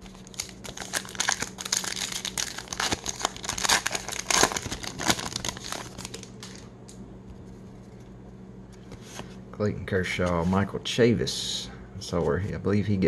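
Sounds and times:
plastic wrapper crinkling and tearing: 0.0 - 6.7.

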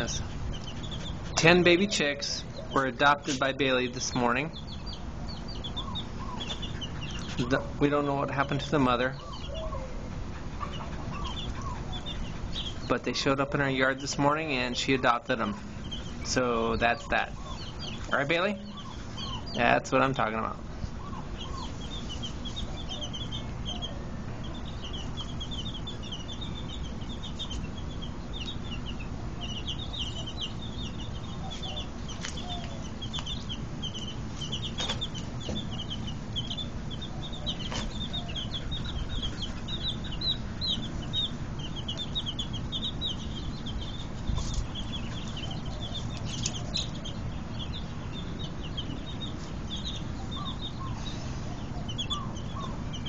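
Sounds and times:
baby chicks peeping: 0.0 - 53.0
steady low rumble: 0.0 - 53.0.

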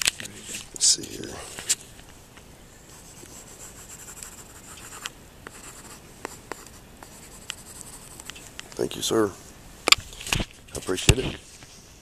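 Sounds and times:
stylus scratching on screen: 3.0 - 8.3.

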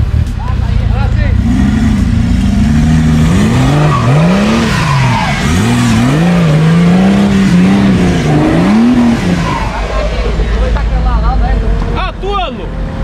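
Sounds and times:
off-road engine revving: 0.0 - 13.0.

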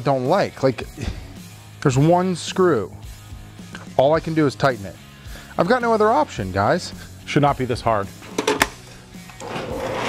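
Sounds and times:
table saw motor running: 9.4 - 10.0.

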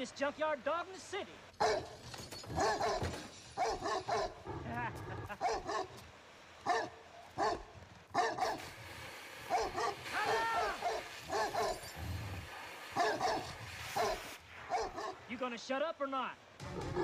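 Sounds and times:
dog barking deeply: 1.6 - 1.9, 2.5 - 3.0, 3.6 - 6.0, 6.6 - 8.7, 9.5 - 11.9, 12.9 - 15.2.

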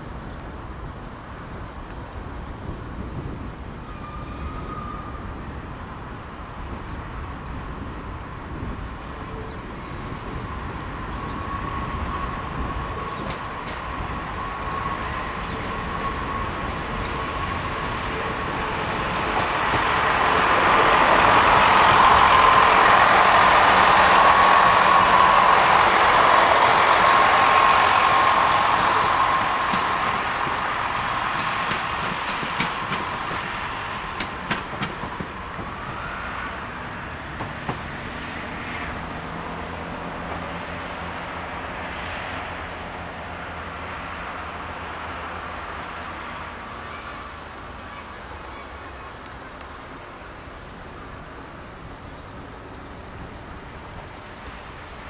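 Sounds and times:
train engine and wheel noise: 0.0 - 55.0
train wheels clicking: 10.2 - 38.2.

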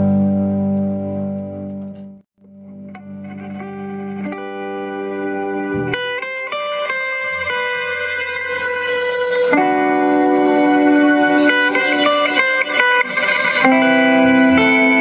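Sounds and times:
bass guitar: 0.0 - 15.0
electric guitar lead notes: 0.0 - 15.0
drums: 7.8 - 15.0
cymbals: 8.2 - 15.0.

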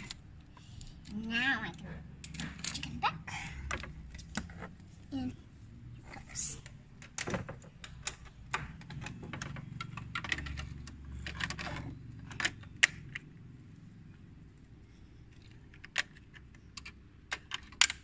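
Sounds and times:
plastic toy pieces clicking: 0.0 - 3.0, 6.4 - 13.4, 15.2 - 18.0.

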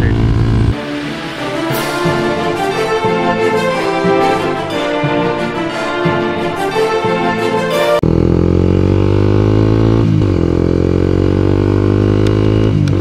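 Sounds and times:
motorcycle engine accelerating: 0.0 - 0.8, 8.0 - 13.0
intro music: 0.0 - 8.1.

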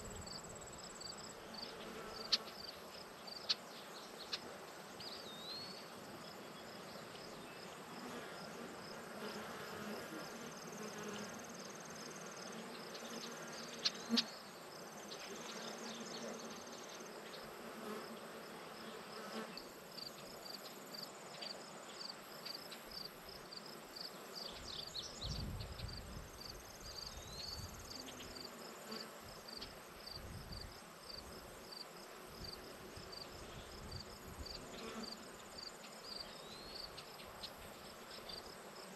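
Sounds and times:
crickets chirping: 0.0 - 4.4, 19.6 - 38.9.

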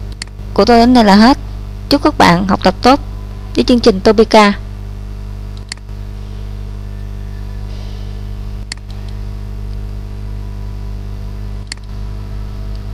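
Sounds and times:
electrical hum and hiss: 0.0 - 12.9
computer mouse click: 0.1 - 0.4, 5.6 - 5.9, 11.6 - 11.9.

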